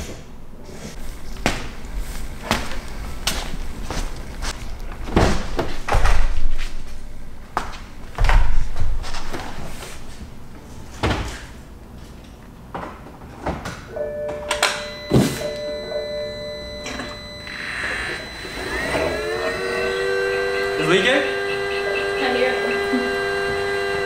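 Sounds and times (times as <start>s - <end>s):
electronic car tones: 13.9s - 24.0s
rising whine: 14.0s - 24.0s.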